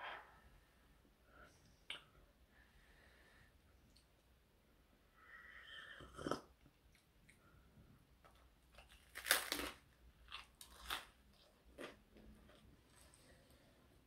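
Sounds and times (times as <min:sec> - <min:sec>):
chewing crusty bread: 0:08.2 - 0:13.2.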